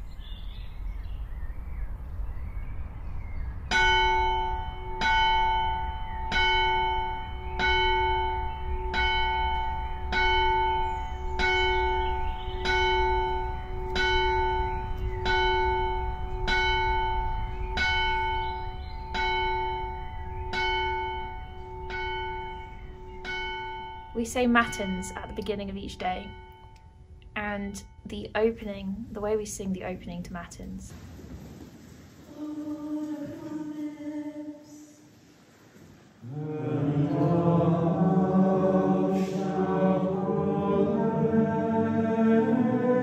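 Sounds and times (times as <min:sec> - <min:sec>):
church bell tolling: 0:03.7 - 0:30.7, 0:36.3 - 0:43.0
low steady rumble: 0:24.0 - 0:34.1.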